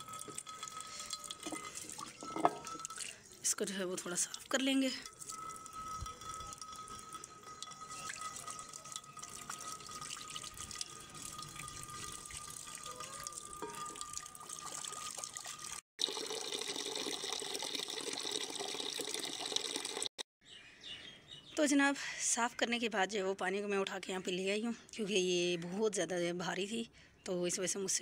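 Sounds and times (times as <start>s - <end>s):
water splashing into clay dish: 0.0s - 20.1s.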